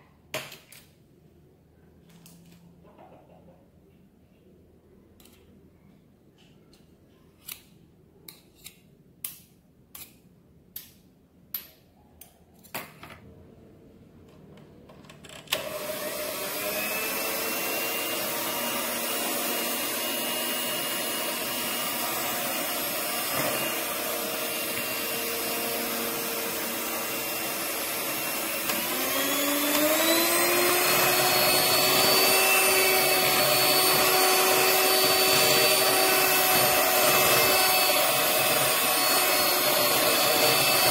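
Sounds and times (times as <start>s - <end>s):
electric hand mixer whine: 15.5s - 40.9s.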